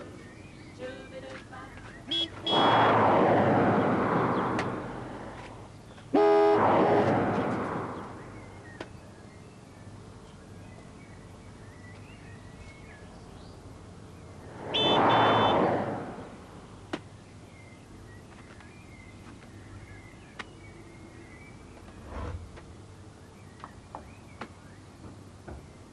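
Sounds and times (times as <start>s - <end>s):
faint birdsong: 0.0s - 2.8s, 3.8s - 6.2s, 7.8s - 15.6s, 16.2s - 25.9s
car passing: 2.1s - 8.8s, 14.0s - 16.9s, 21.9s - 22.8s.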